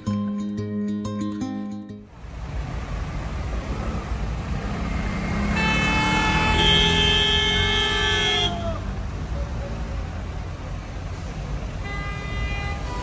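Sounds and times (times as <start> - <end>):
traffic engines running: 2.0 - 13.0
lower car horn: 5.3 - 8.9, 11.8 - 13.0
car horn held: 5.5 - 8.8.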